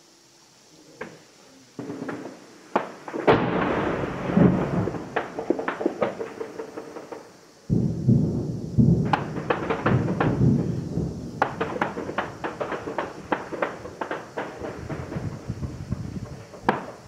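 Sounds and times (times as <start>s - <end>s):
heavy rumbling blast: 7.7s - 17.0s.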